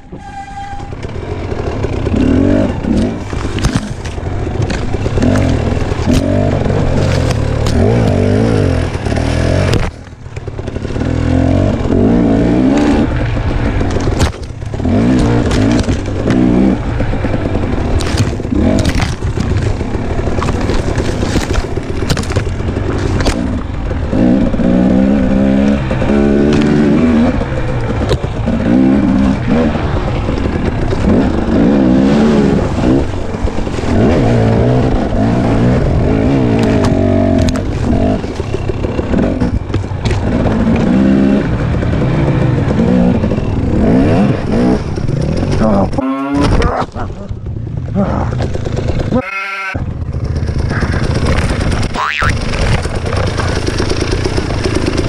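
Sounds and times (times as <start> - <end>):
two-stroke motorcycle engine revving: 0.6 - 55.0.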